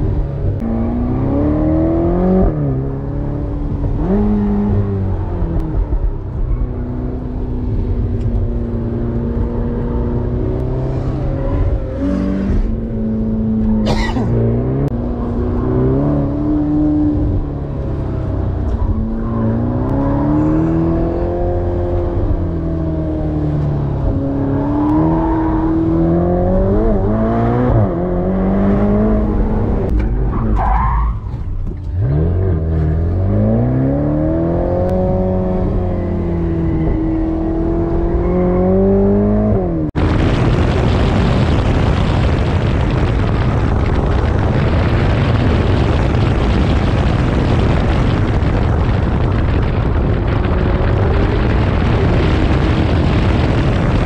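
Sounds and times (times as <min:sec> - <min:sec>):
car engine revving: 0:00.0 - 0:54.0
wind rush over microphone: 0:33.3 - 0:54.0.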